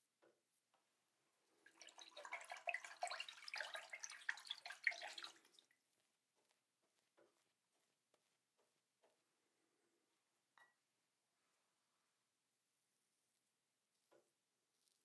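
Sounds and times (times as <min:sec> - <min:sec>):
tap water splashing in sink: 0:01.7 - 0:05.6.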